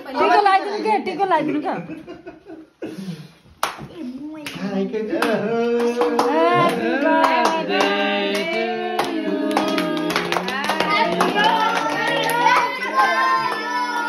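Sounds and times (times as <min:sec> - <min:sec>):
hand clapping: 0:03.6 - 0:04.6, 0:05.2 - 0:14.0
group singing: 0:04.6 - 0:14.0.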